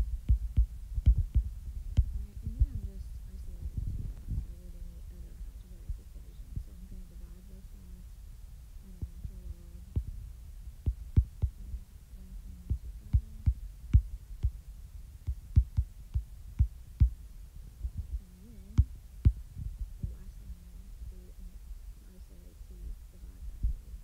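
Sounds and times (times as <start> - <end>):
low rumble: 0.0 - 24.0
stylus tapping on glass screen: 0.2 - 2.2.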